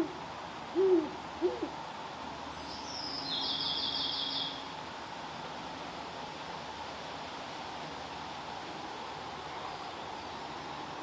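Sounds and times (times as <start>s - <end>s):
owl hooting: 0.0s - 1.8s.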